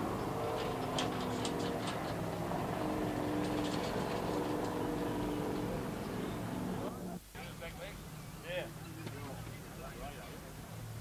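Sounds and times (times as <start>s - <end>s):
boat engine running: 0.0s - 7.2s.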